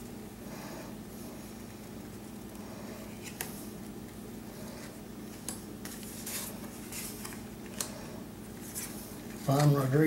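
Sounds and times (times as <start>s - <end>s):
steady low hum: 0.0s - 10.0s
cards flipped by hand: 3.2s - 3.6s.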